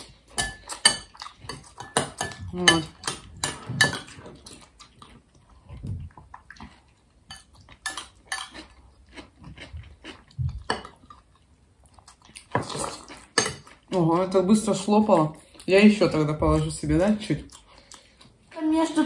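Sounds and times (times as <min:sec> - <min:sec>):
people eating mouth sounds: 0:00.0 - 0:14.0, 0:17.4 - 0:18.5
spoons clinking against ceramic bowls: 0:00.4 - 0:04.2, 0:07.3 - 0:08.6, 0:13.4 - 0:13.7.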